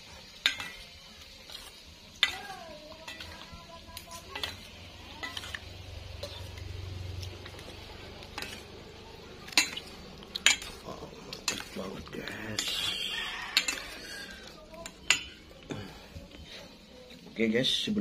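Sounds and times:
wet stirring of noodles: 0:00.0 - 0:18.0
utensils clinking against bowl: 0:00.4 - 0:06.6, 0:07.4 - 0:08.7, 0:09.4 - 0:16.0.

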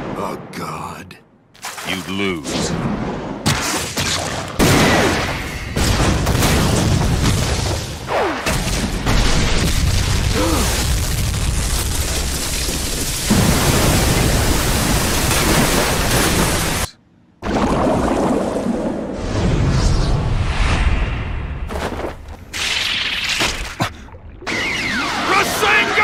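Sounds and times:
rumble of crashing rock and water: 0:08.9 - 0:19.6.

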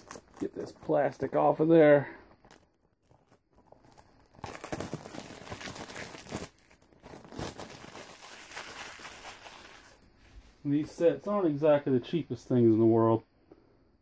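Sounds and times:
plastic wrap tearing and crinkling: 0:00.0 - 0:01.5, 0:02.4 - 0:10.0.

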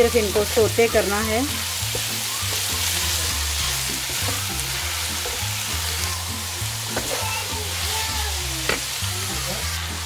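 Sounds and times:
background music with bass: 0:00.0 - 0:10.0
food sizzling in a wok: 0:00.0 - 0:10.0.

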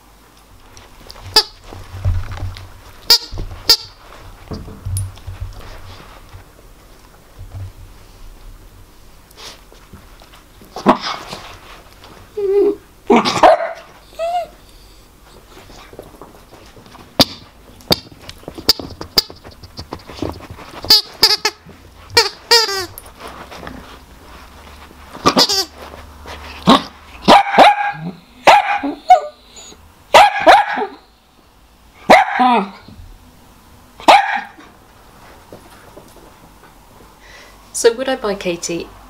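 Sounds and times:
dog barking sharply: 0:13.2 - 0:13.9, 0:27.2 - 0:29.4, 0:30.1 - 0:31.0, 0:32.1 - 0:32.6, 0:34.0 - 0:34.6.

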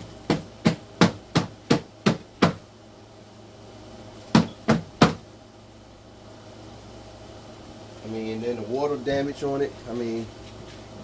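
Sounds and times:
sharp knocks on something hard: 0:00.3 - 0:02.6, 0:04.3 - 0:05.2.

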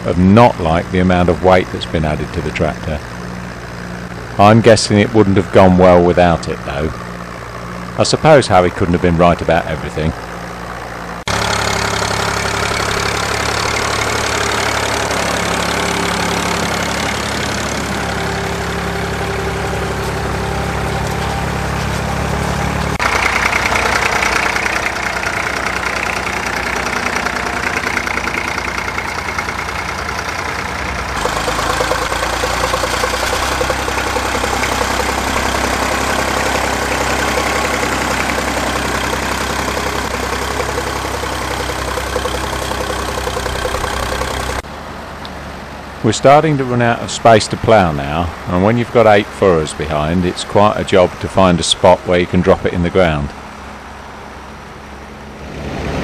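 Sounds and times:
tractor engines under load: 0:00.0 - 0:56.0.

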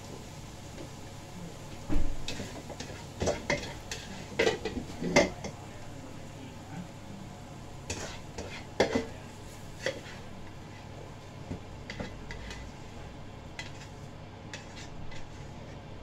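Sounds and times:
spatula scraping and knocking wok: 0:02.2 - 0:05.6, 0:07.8 - 0:16.0.

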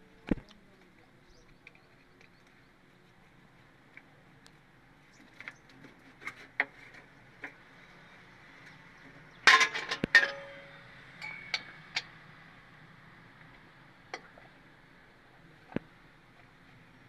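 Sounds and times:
metal tools clinking on engine: 0:09.4 - 0:12.1.

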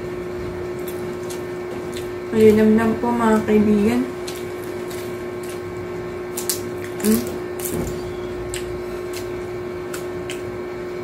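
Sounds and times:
steady low hum: 0:00.0 - 0:11.0
chips crunching while eating: 0:04.1 - 0:10.5.

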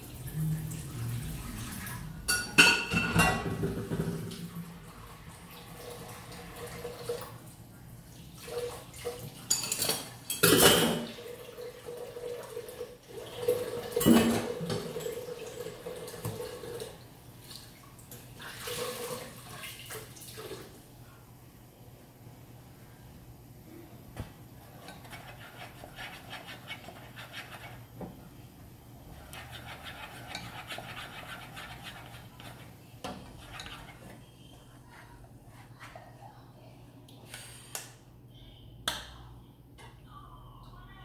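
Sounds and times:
pot clattering: 0:02.3 - 0:04.3
tap water running into sink: 0:11.0 - 0:20.7.

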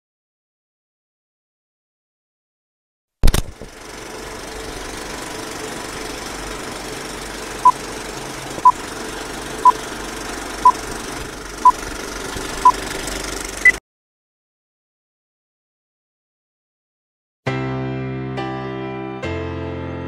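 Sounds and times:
sharp click: 0:03.2 - 0:03.7
film projector rattling whir: 0:03.3 - 0:13.8.

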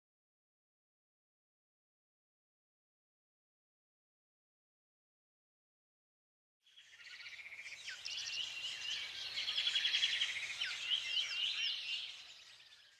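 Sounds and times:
birds chirping and trilling: 0:06.7 - 0:12.9.

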